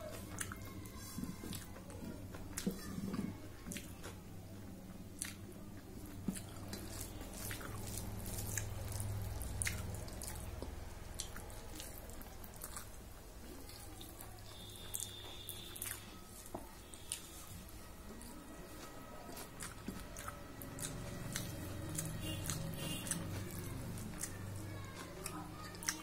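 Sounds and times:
chewing: 0.0s - 26.0s
fingers mixing food on plate: 5.2s - 26.0s.

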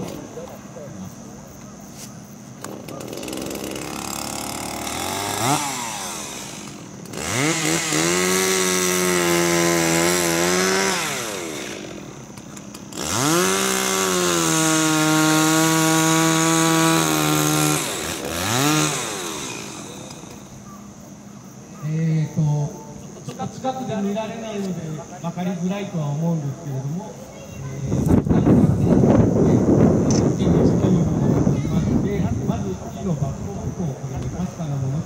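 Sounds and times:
chainsaw cutting log: 2.6s - 20.6s.

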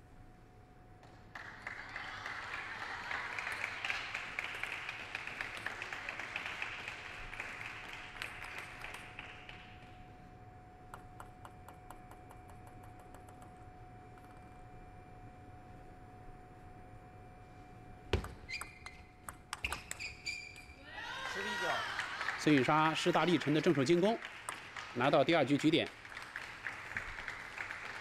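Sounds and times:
applause: 1.0s - 10.0s, 21.2s - 28.0s
faint steady tone: 9.1s - 19.5s
table tennis ball bouncing: 18.1s - 20.7s.

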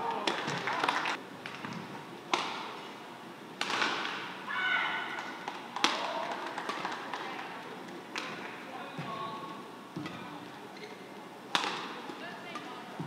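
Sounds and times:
racket hitting shuttlecock: 3.6s - 4.3s, 11.5s - 12.7s.

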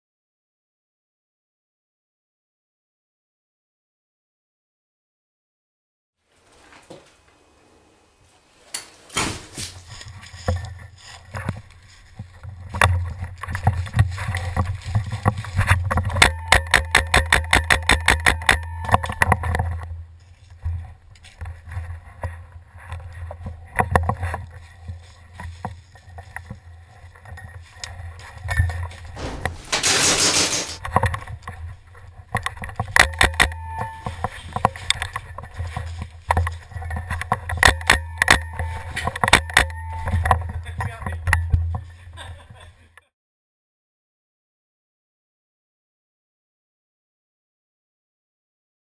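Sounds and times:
footsteps on dry leaves: 9.4s - 15.7s
wind and handling rumble: 9.8s - 16.2s
knocks: 29.2s - 30.8s
loud rushing hiss: 29.2s - 30.8s
rapid regular knocks: 29.2s - 30.8s.

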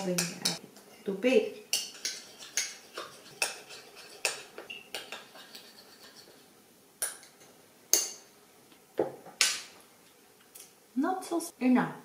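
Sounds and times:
spoon clinking and scraping dish: 1.6s - 6.4s.

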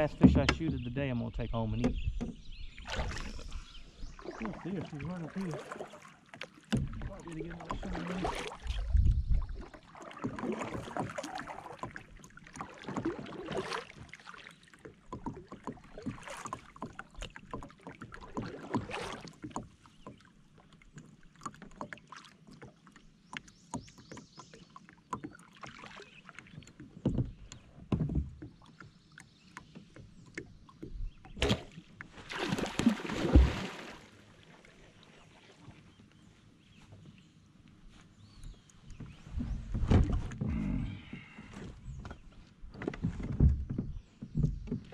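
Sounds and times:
paddle swishing through water: 0.0s - 44.9s.

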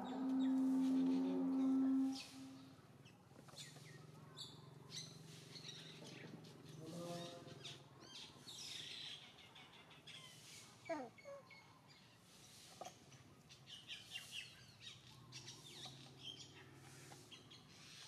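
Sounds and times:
loud steady tone: 0.0s - 2.7s
faint low hum: 0.0s - 8.0s
small birds chirping: 0.0s - 18.0s.

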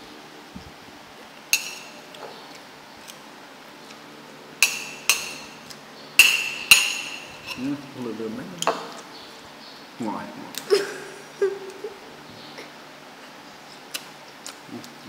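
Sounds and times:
spoon clinking on ceramic plate: 1.6s - 2.0s, 4.6s - 7.6s.

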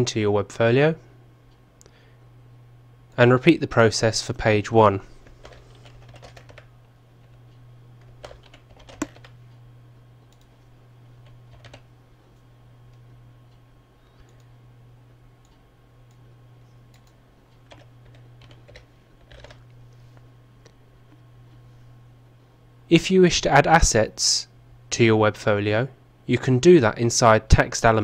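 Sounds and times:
steady low hum: 0.0s - 28.0s
keyboard keystrokes: 5.4s - 7.4s, 8.1s - 9.3s, 11.2s - 11.8s, 16.9s - 19.7s.

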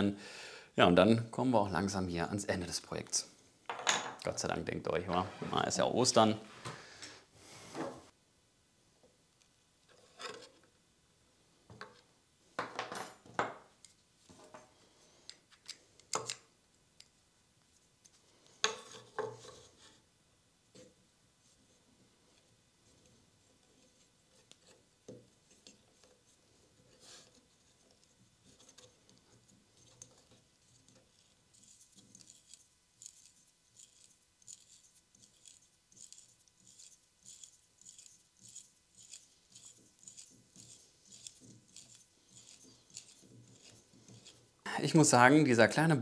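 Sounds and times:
hand drill scraping into wood: 26.8s - 44.6s.

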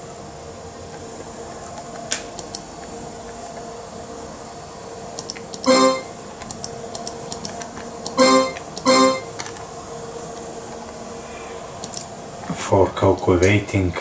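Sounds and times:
steady background hum: 0.0s - 14.0s
short electronic beep: 5.6s - 6.1s, 8.2s - 9.3s.

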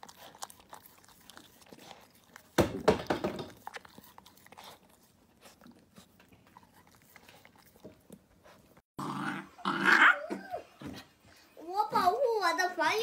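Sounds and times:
puppy chewing and licking: 0.0s - 8.9s
puppy crying: 9.2s - 10.8s.

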